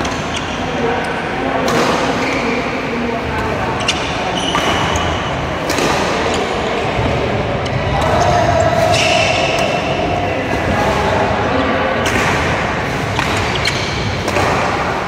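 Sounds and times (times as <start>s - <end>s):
large hall background noise: 0.0s - 15.0s
racket striking shuttlecock: 3.9s - 6.5s, 12.0s - 15.0s.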